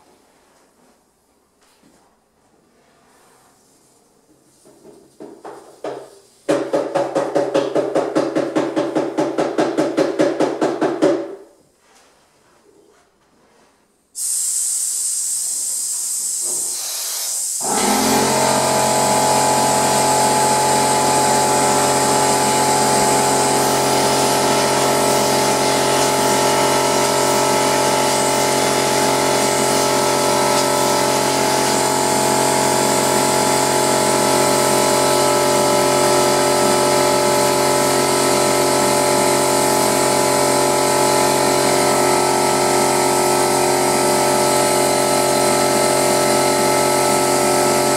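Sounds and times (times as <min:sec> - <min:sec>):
hopper gun spraying air hiss: 0:14.2 - 0:21.2
air compressor running: 0:14.2 - 0:47.9.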